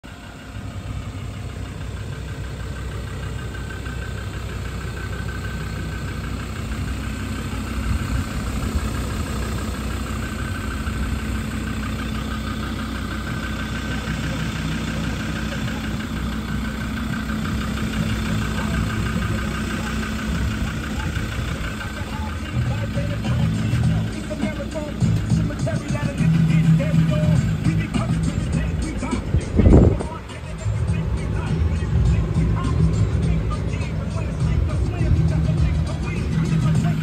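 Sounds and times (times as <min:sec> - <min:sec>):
diesel engine idling: 0:00.0 - 0:37.0.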